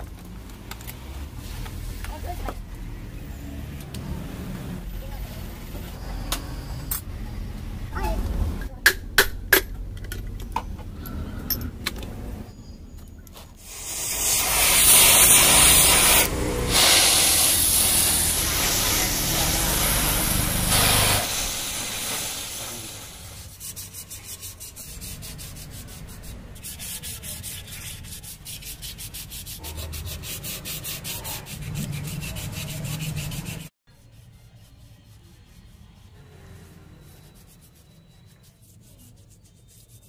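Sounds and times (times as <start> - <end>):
sandpaper scraping metal: 13.6 - 40.0.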